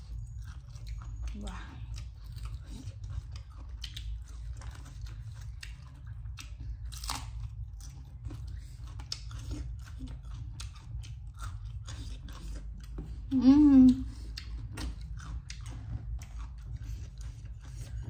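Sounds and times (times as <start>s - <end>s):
crunching bites of fried chicken: 2.0s - 13.2s.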